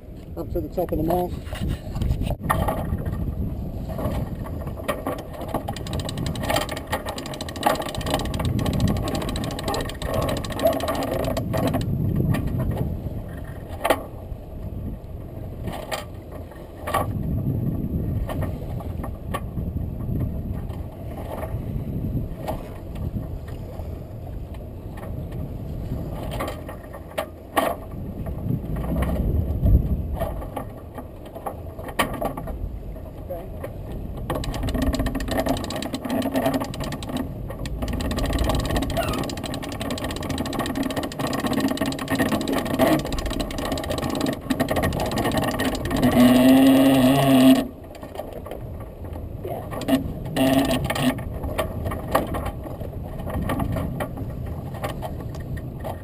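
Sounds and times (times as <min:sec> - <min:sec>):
wind rushing over microphone: 0:00.0 - 0:13.4, 0:17.0 - 0:23.5, 0:27.9 - 0:30.6
water washing along hull: 0:02.4 - 0:56.0
sharp clicks and knocks: 0:04.8 - 0:12.8, 0:34.2 - 0:56.0.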